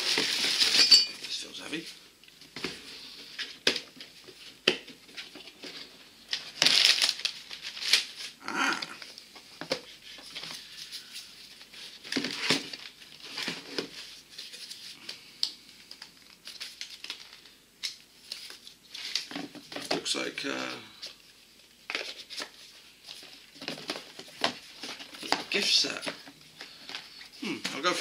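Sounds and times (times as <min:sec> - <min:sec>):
cardboard and paper crinkling: 0:00.0 - 0:00.8, 0:02.5 - 0:08.4, 0:09.0 - 0:15.1, 0:21.9 - 0:28.0.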